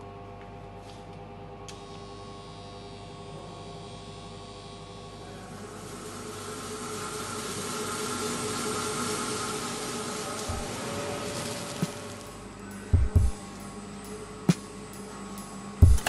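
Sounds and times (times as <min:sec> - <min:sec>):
coffee roaster humming: 0:00.0 - 0:16.0
burner flame hissing: 0:05.3 - 0:15.0.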